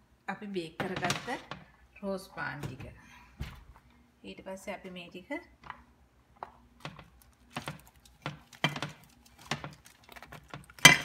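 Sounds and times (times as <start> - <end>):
aluminium foil crinkling: 7.0 - 11.0.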